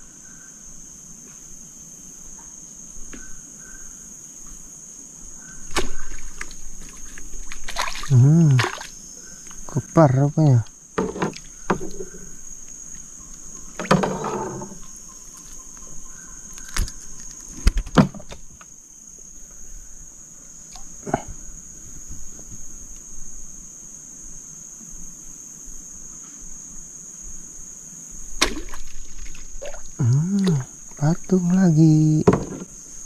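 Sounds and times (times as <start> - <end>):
insects droning: 0.0 - 33.0
sharp knocks: 32.2 - 32.7.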